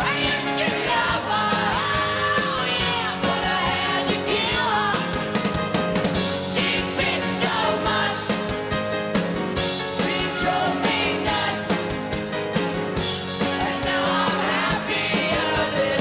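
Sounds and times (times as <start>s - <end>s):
male lead singer: 0.0s - 5.3s, 9.8s - 12.1s, 13.3s - 16.0s
live rock band: 0.0s - 16.0s.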